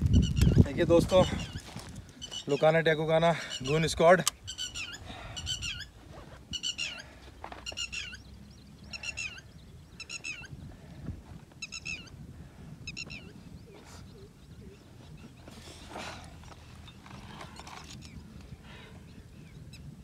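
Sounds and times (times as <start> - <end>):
bird calling: 0.0 - 12.2, 12.8 - 20.0.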